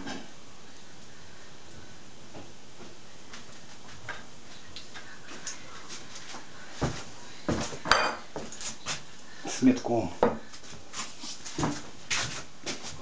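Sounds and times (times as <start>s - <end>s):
crockery knocking and clinking: 7.9s - 8.3s.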